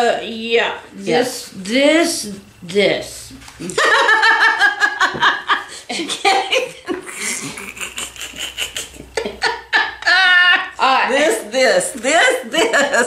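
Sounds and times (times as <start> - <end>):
women laughing: 3.6 - 11.0, 12.4 - 13.0.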